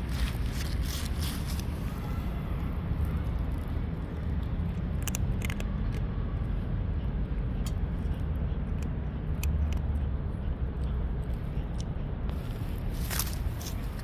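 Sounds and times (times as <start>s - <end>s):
cat crunching dry kibble: 0.0s - 1.9s, 3.2s - 6.1s, 7.5s - 10.0s.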